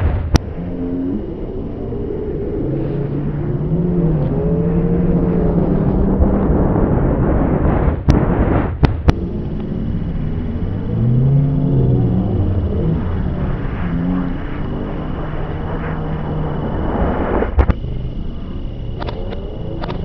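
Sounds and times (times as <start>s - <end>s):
reversed bang: 0.0s - 1.7s, 6.1s - 11.7s
low slowed rumble: 0.0s - 20.0s.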